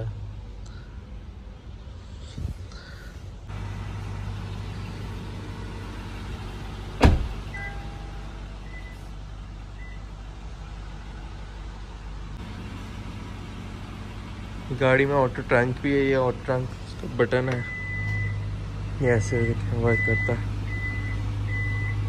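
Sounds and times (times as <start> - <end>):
low hum inside vehicle: 0.0 - 22.0
car door shutting: 6.9 - 7.9.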